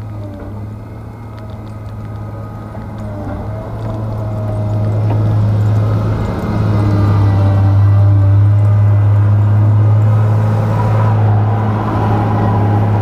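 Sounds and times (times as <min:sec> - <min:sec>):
diesel engine under load: 0:00.0 - 0:13.0.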